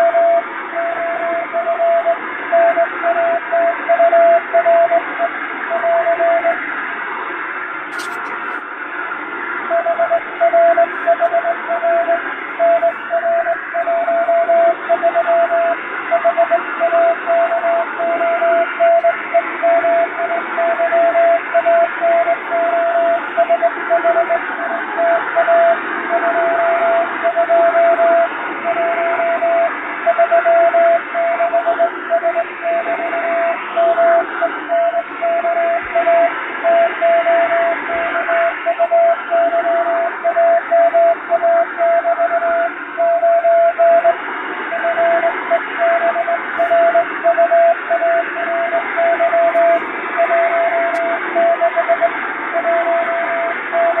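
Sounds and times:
morse code beeps: 0.0 - 5.0, 9.7 - 54.0
radio static hiss: 0.0 - 54.0.

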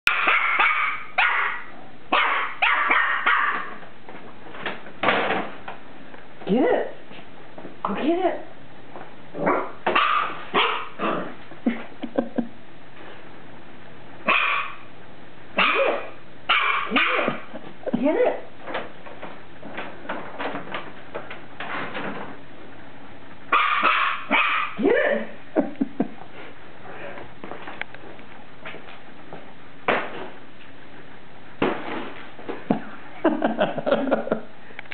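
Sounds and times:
puppy barking: 0.1 - 3.8, 9.4 - 11.3, 14.2 - 14.9, 15.6 - 17.5, 23.5 - 24.8.

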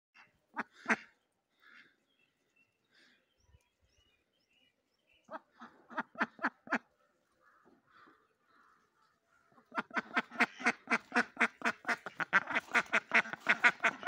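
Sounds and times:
duck quacking: 0.2 - 1.9, 5.3 - 6.9, 9.6 - 14.0.

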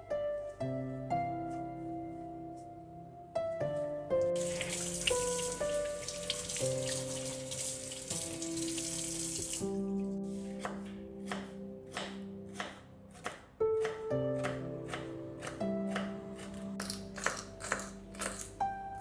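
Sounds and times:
soft instrumental music: 0.0 - 19.0
tap water running into sink: 4.4 - 9.8.

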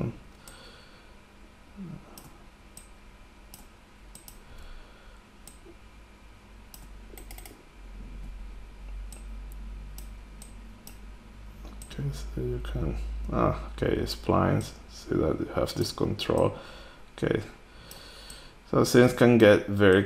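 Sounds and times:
steady low hum: 0.0 - 20.0
computer mouse clicking: 2.2 - 4.4, 5.4 - 5.7, 6.7 - 7.6, 9.1 - 11.0.

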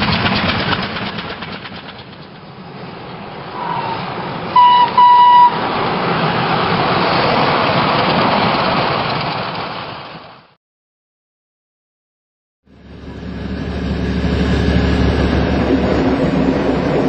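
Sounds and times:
passing train rumble: 0.0 - 10.5, 12.7 - 17.0
train horn toots: 4.6 - 5.7.

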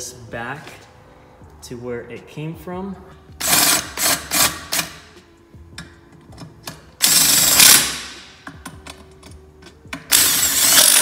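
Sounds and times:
cordless drill driving a bolt: 10.1 - 11.0.

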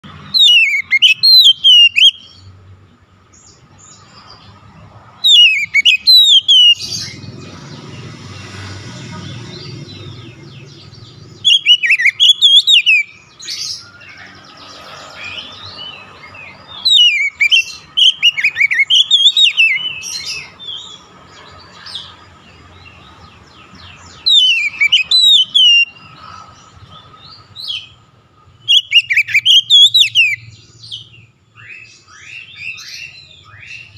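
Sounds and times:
bird singing whistled phrases: 0.3 - 2.5, 5.2 - 7.2, 11.4 - 14.3, 15.3 - 20.8, 24.2 - 26.1, 28.6 - 31.0, 31.6 - 33.9.

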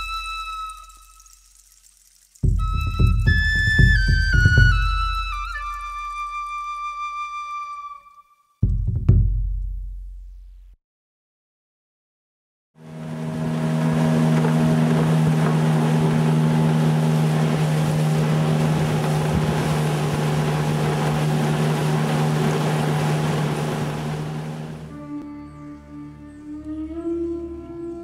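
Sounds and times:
wind and water rushing: 12.8 - 25.0
outboard motor running: 12.8 - 25.1.

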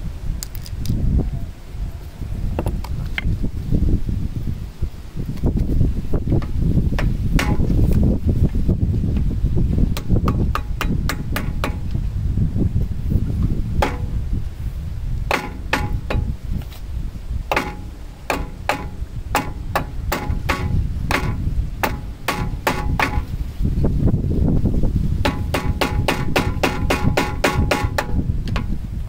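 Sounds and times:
hammer blows on metal: 6.4 - 8.0, 9.8 - 12.1, 13.4 - 16.8, 17.5 - 23.5, 24.9 - 28.8.

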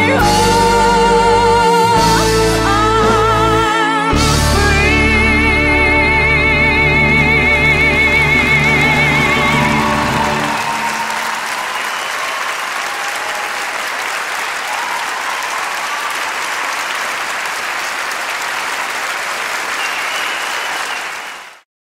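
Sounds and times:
audience applauding: 8.0 - 21.7
people cheering: 8.2 - 21.6.

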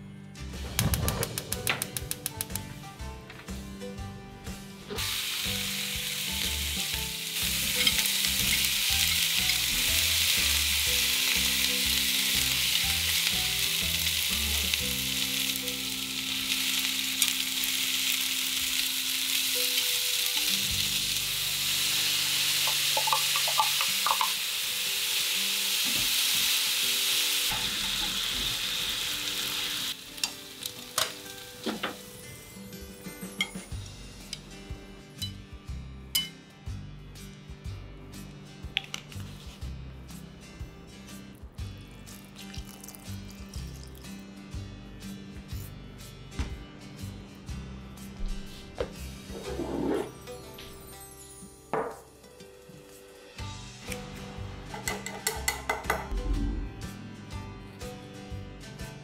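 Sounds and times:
food sizzling in oil: 5.0 - 33.7
pan clinking: 22.7 - 24.4, 54.7 - 56.1.

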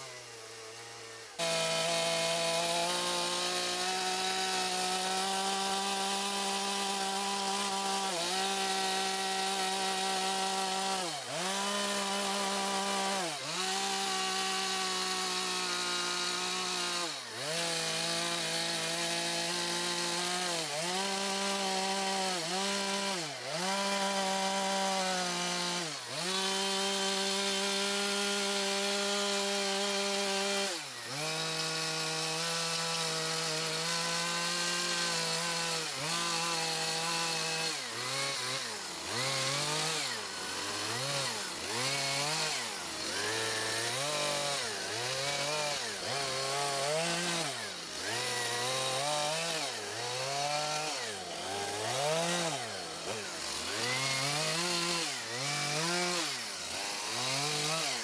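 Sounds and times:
chainsaw cutting into log: 0.0 - 58.0.

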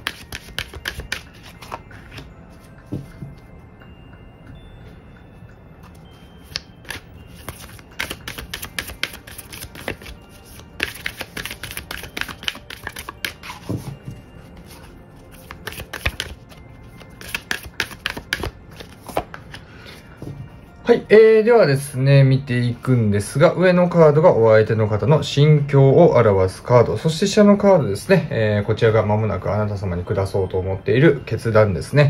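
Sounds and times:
cards being shuffled: 0.0 - 2.3, 6.2 - 13.9, 14.6 - 19.6.

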